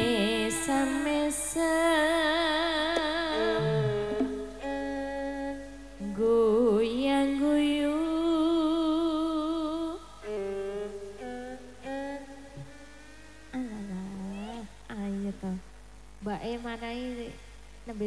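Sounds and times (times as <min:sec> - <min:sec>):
slow melody with vibrato: 0:00.0 - 0:08.6, 0:10.2 - 0:14.3.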